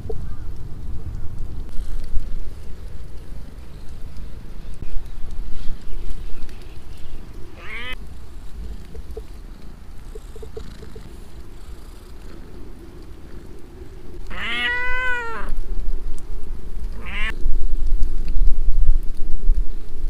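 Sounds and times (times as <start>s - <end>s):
low rumbling on microphone: 0.0s - 20.0s
cat meowing: 7.6s - 8.0s, 14.2s - 15.6s, 16.9s - 17.4s.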